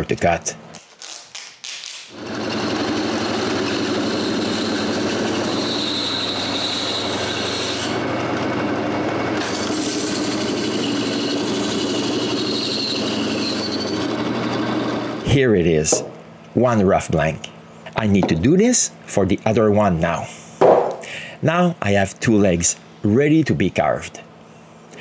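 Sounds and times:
bandsaw humming: 1.2 - 16.2.

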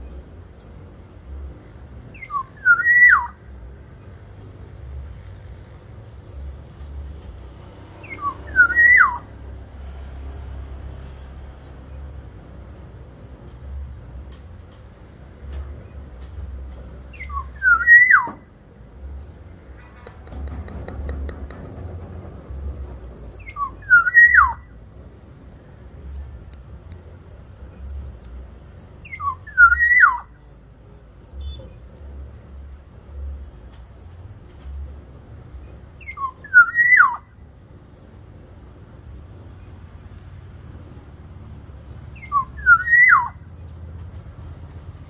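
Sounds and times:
oriole fluting whistle: 8.1 - 9.3.

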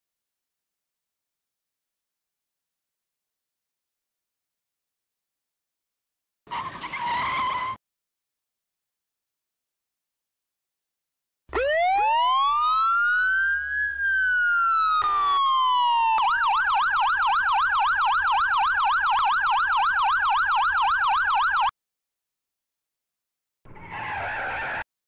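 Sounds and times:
emergency siren wailing and yelping: 11.5 - 21.7.

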